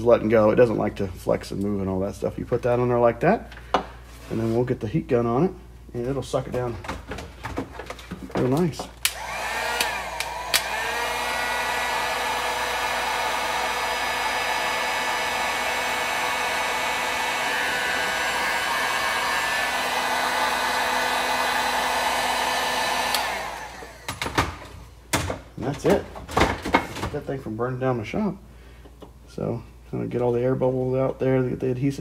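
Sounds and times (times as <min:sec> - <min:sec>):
heat gun fan whining: 0:07.8 - 0:27.3
sharp clicks: 0:09.0 - 0:10.8.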